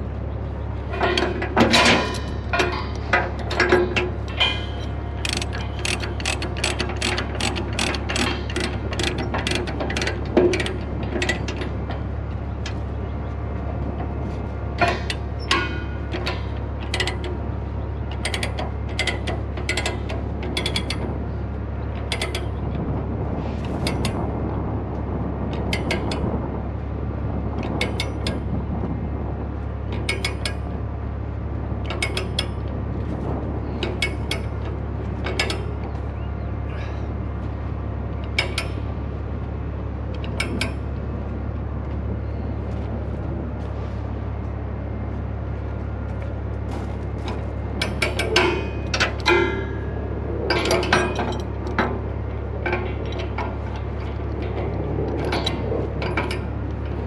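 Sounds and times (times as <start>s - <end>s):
steady low hum: 0.0s - 57.0s
ratchet chain binder clicking: 2.5s - 11.8s, 14.8s - 17.4s, 18.1s - 21.1s, 22.0s - 22.6s, 33.8s - 35.8s, 40.2s - 40.9s, 47.2s - 57.0s.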